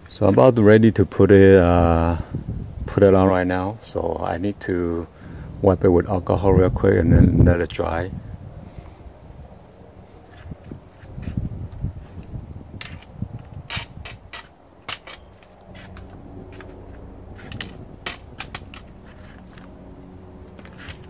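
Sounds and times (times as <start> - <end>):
low rumbling thumps: 5.1 - 7.5
sharp clicks and light knocks: 12.2 - 19.8, 20.4 - 21.0.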